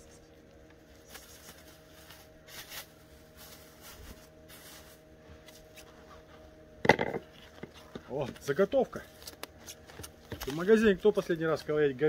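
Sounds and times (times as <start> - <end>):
plastic bag rustling: 1.0 - 5.9.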